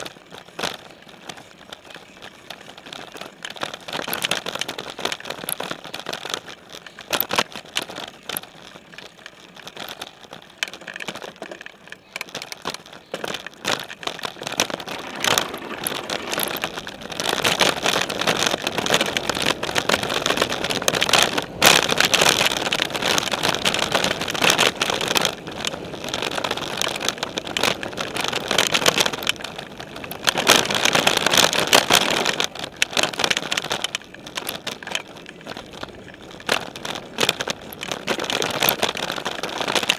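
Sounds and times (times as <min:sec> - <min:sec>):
bike rattling and clattering: 0:00.0 - 0:39.9
bike tyres rolling on gravel: 0:00.0 - 0:39.9.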